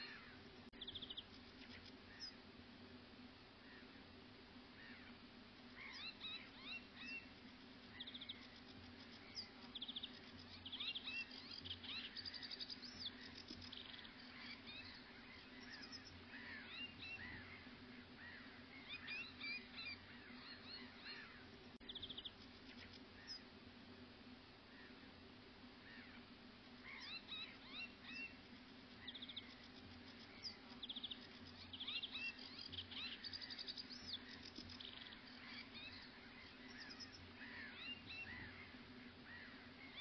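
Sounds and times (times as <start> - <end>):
small birds chirping and trilling: 0.0 - 2.4, 4.7 - 23.5, 25.8 - 40.0
faint low hum: 0.0 - 40.0.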